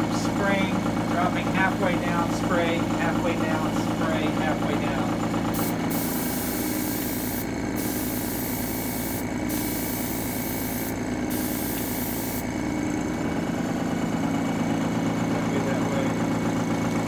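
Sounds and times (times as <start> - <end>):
air compressor humming: 0.0 - 17.0
airbrush hissing: 5.5 - 12.5.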